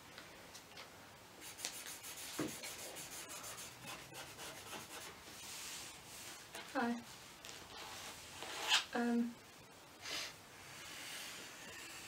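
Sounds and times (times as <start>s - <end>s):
marker pens scratching on paper: 1.5s - 5.2s.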